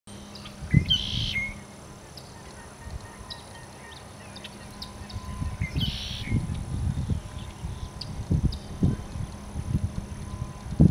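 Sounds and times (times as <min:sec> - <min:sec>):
harsh bird calls: 0:00.2 - 0:09.1
low rumbling: 0:00.2 - 0:10.9
short bird chirps: 0:00.4 - 0:01.6.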